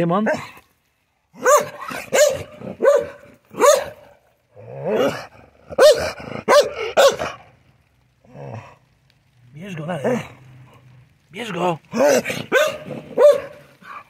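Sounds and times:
dog barking: 1.4 - 4.2, 4.9 - 7.4, 12.0 - 14.0.

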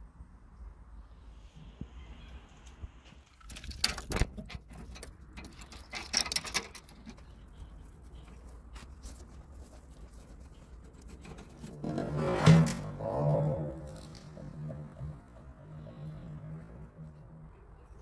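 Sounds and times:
metal grill grate rattling: 3.6 - 7.3.

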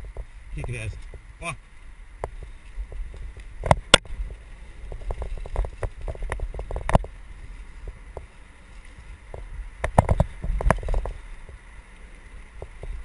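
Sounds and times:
low wind rumble: 0.0 - 13.0
mountain bike rattling and knocking: 2.2 - 8.3, 9.2 - 11.6.

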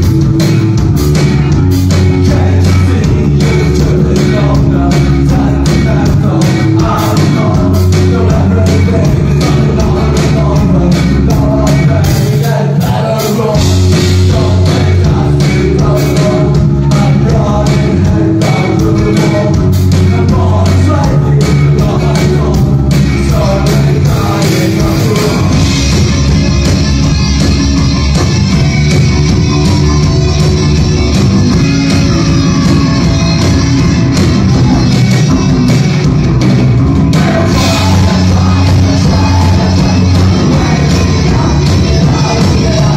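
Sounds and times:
live rock band playing: 0.0 - 42.9
person singing: 1.9 - 26.0, 37.1 - 42.9.

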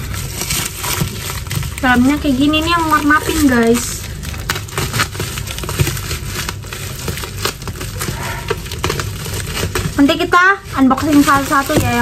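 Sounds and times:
plastic crinkling: 0.0 - 12.0.

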